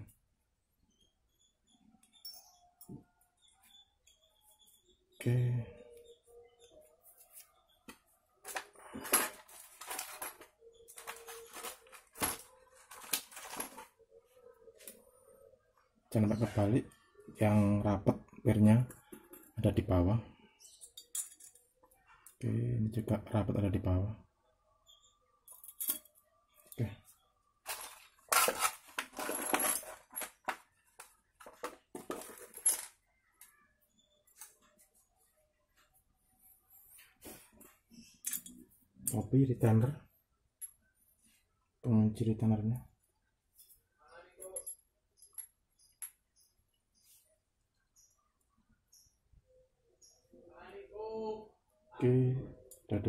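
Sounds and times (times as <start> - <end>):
metal parts clinking and scraping: 8.5 - 14.0, 20.8 - 21.7, 25.4 - 26.8, 27.7 - 30.7, 31.4 - 33.0.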